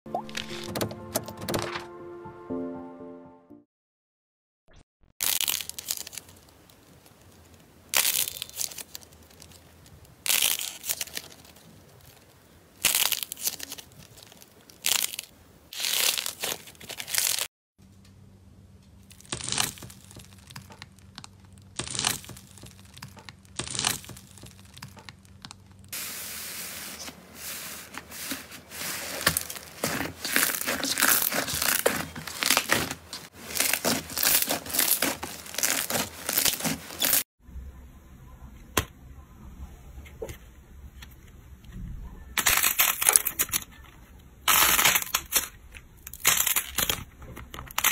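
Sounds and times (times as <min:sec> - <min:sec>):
slime crackling when squeezed: 0:05.2 - 0:09.6, 0:33.5 - 0:37.2
slime crackling and tearing: 0:05.2 - 0:17.5, 0:19.0 - 0:25.8, 0:29.0 - 0:37.3, 0:44.5 - 0:47.9
hands pressing foam beads: 0:19.1 - 0:25.8, 0:27.9 - 0:37.2
faint steady hum: 0:37.4 - 0:42.8.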